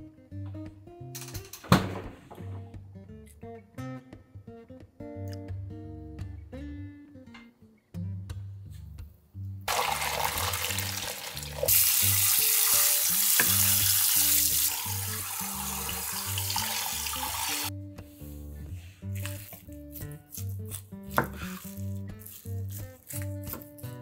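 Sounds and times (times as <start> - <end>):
soft background music: 0.0 - 24.0
tap water running into sink: 9.7 - 17.7.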